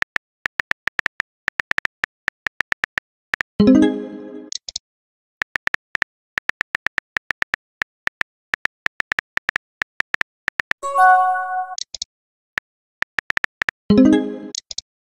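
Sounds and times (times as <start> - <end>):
short bright chime: 10.8 - 11.8.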